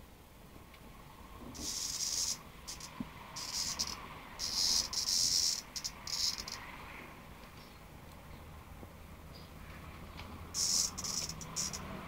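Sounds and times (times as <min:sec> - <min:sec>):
cicada distress buzz: 0:01.6 - 0:06.8, 0:10.5 - 0:12.0.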